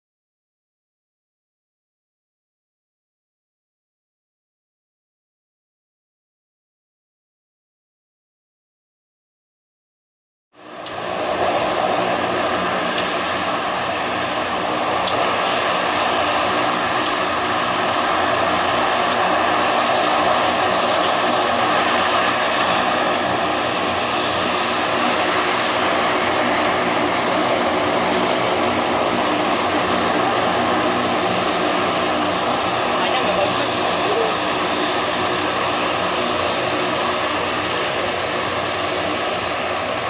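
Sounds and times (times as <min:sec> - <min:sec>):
turboprop engines whining: 0:10.6 - 0:40.0.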